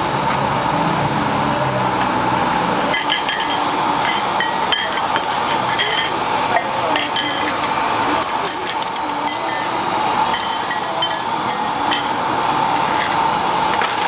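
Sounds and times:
traffic hum: 0.0s - 14.0s
glass tumblers clinking: 2.9s - 14.0s.

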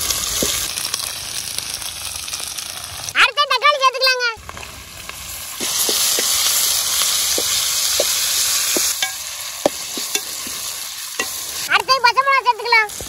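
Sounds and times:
paste sizzling in hot oil: 0.0s - 3.2s, 4.4s - 13.0s
spoon scraping and tapping pan: 5.6s - 6.6s, 7.3s - 10.6s, 11.2s - 11.5s.

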